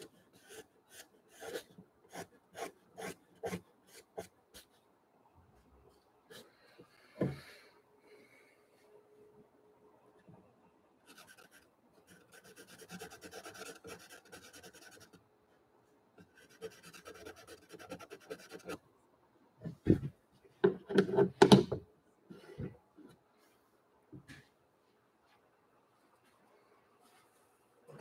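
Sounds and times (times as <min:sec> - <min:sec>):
pencil scratching on paper: 0:00.0 - 0:04.7, 0:11.1 - 0:15.2, 0:16.3 - 0:18.8.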